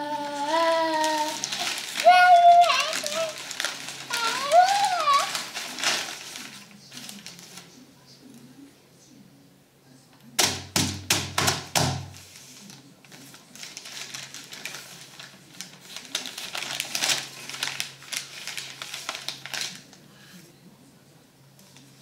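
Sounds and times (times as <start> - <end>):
newspaper rustling and crinkling: 0.0 - 7.8, 11.3 - 20.1
hands slapping newspaper: 0.2 - 7.8, 10.4 - 20.0.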